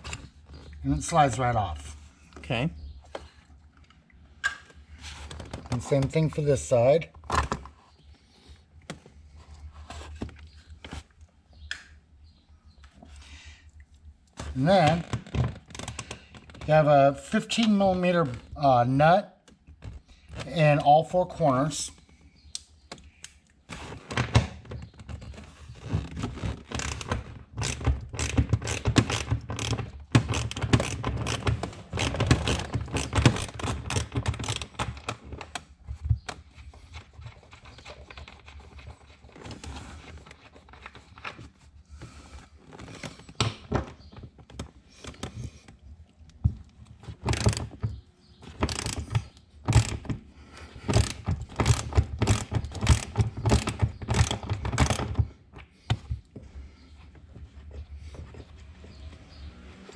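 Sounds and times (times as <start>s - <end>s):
ratchet clicking: 48.6s - 50.1s, 50.9s - 55.1s.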